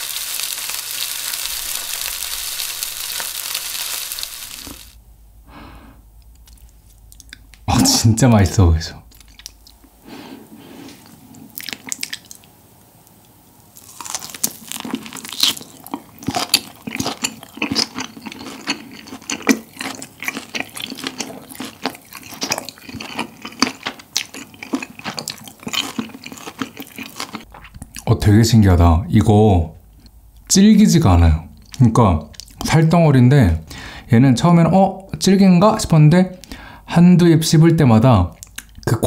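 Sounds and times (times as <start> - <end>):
small mouth clicks: 6.3 - 7.6, 38.4 - 38.9
close chewing mouth sounds: 9.1 - 9.9, 13.8 - 28.1, 31.6 - 32.7.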